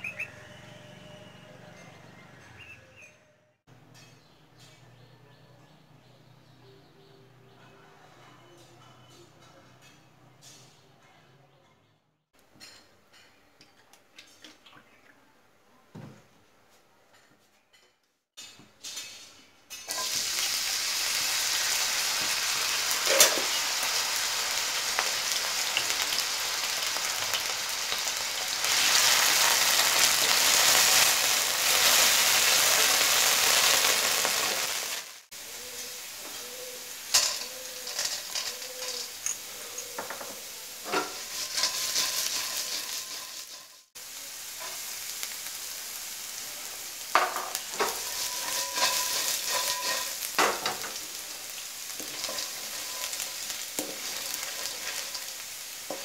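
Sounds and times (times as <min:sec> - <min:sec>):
food sizzling in hot oil: 0:19.7 - 0:56.0
spatula knocking and scraping pan: 0:37.2 - 0:43.9, 0:47.2 - 0:51.0, 0:51.9 - 0:56.0.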